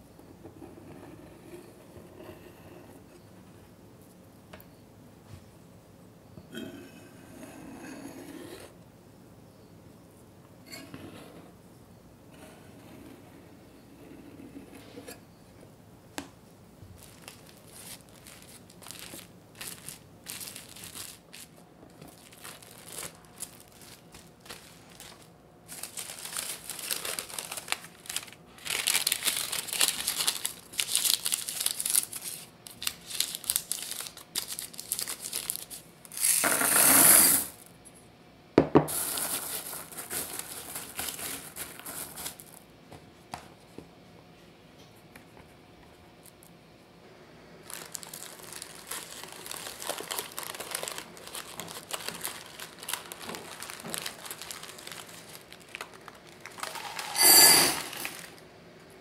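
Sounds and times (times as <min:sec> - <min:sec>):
parchment paper crinkling: 0:16.9 - 0:36.2, 0:38.9 - 0:42.6, 0:47.6 - 0:57.3
baking beads poured and rattling: 0:38.9 - 0:42.4, 0:47.7 - 0:58.4
knife scraping dough on steel: 0:57.2 - 0:58.1.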